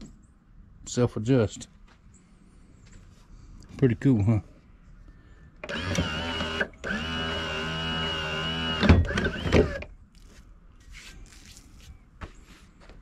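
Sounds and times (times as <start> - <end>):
anchor winch motor whining: 5.6 - 9.9
faint handling sounds: 10.0 - 13.0.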